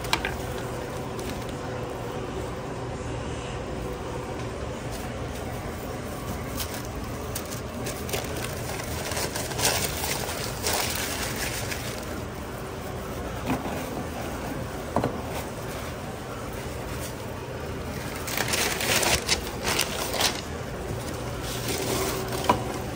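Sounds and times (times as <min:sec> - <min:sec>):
plastic and paper crinkling: 0:00.0 - 0:02.1, 0:04.7 - 0:22.9
steady background hum: 0:00.0 - 0:22.9.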